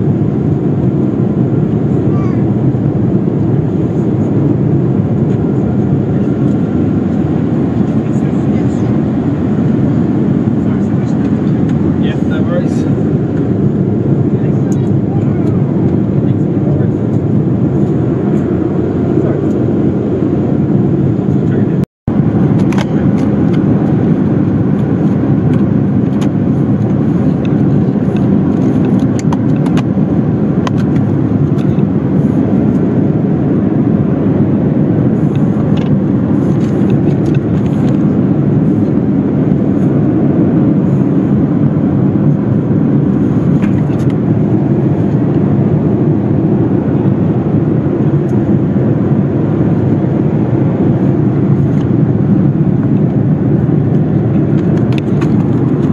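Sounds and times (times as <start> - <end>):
airliner cabin noise: 0.0 - 55.9.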